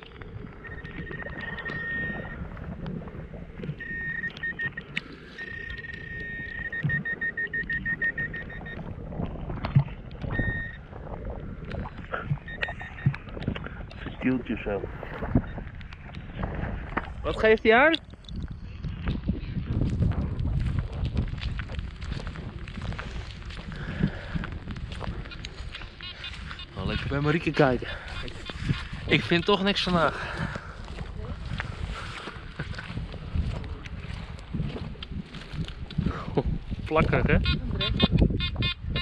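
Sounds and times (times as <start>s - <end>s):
wind buffeting microphone: 0.0s - 39.0s
metal detector pinpointer beeping: 0.6s - 2.4s, 3.7s - 8.8s, 10.3s - 10.8s, 12.5s - 13.2s.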